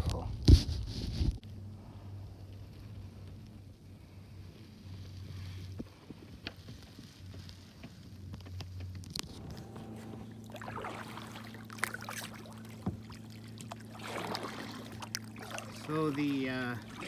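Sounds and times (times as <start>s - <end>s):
faint low hum: 0.0s - 17.0s
paddle splashing water: 9.3s - 17.0s.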